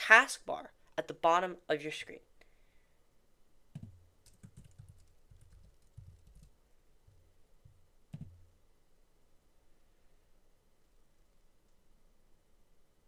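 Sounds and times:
keyboard typing: 3.8s - 6.6s, 8.1s - 8.4s.

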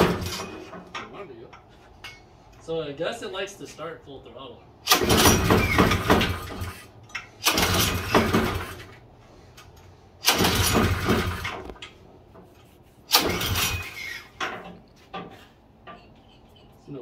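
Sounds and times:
pull starter cord: 4.8s - 9.0s, 10.2s - 11.9s, 13.1s - 14.8s
small engine sputtering and dying: 4.9s - 9.0s, 10.2s - 11.6s, 13.1s - 14.2s.

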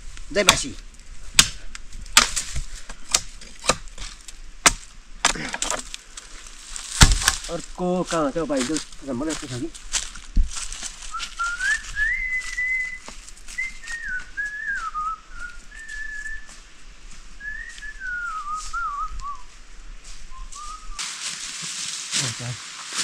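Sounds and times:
person whistling a tune: 11.1s - 16.6s, 17.4s - 19.5s, 20.3s - 21.0s.

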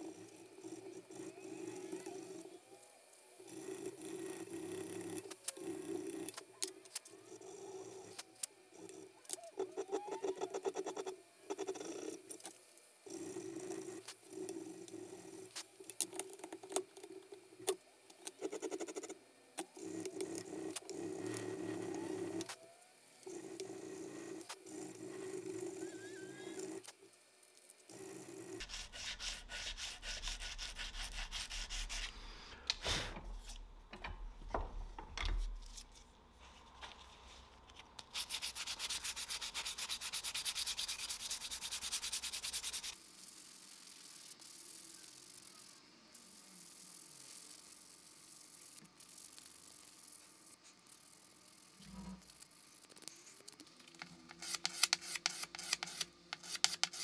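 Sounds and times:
hand sanding strokes: 28.6s - 32.6s, 38.1s - 43.0s, 54.3s - 57.0s.

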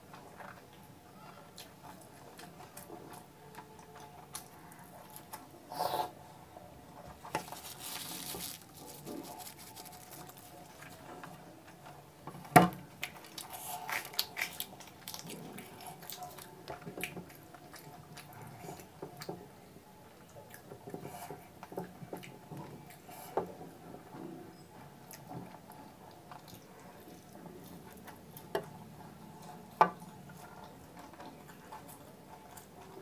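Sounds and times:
wet chewing: 7.2s - 11.4s, 12.9s - 19.3s
bread tearing by hand: 7.3s - 10.7s.

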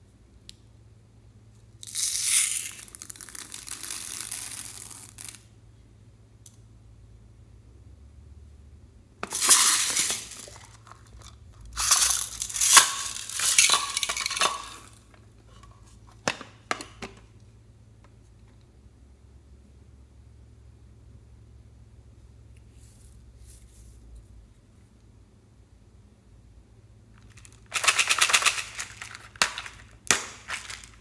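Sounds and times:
plastic beads rattling into glass dish: 1.8s - 5.4s, 9.2s - 15.0s, 27.2s - 31.0s.

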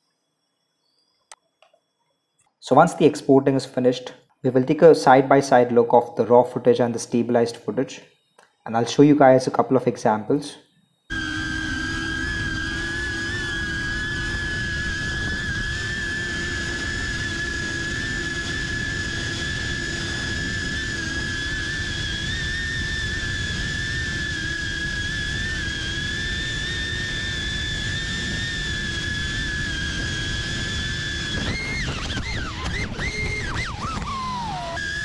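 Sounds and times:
drone motors whining: 10.4s - 35.0s.

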